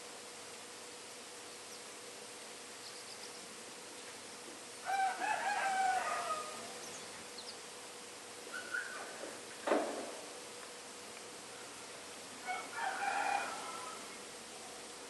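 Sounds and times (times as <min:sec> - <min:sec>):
steady hiss: 0:00.0 - 0:15.0
finches chirping: 0:02.8 - 0:04.1, 0:06.6 - 0:07.7
rooster crowing: 0:04.8 - 0:06.8, 0:11.7 - 0:14.2.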